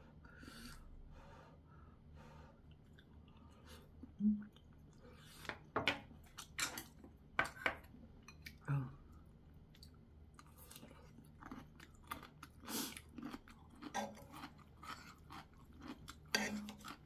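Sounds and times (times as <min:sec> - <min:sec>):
person humming mm: 0:04.2 - 0:04.5
person chewing: 0:09.7 - 0:17.0.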